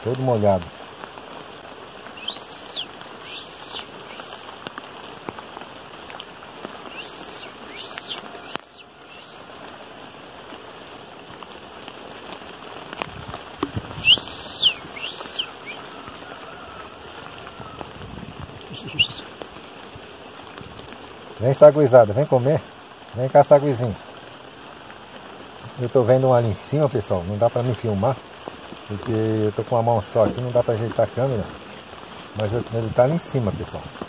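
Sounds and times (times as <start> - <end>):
steady rain falling: 0.0 - 34.0
high-pitched chirps: 2.2 - 4.4, 6.9 - 9.5, 14.0 - 15.8.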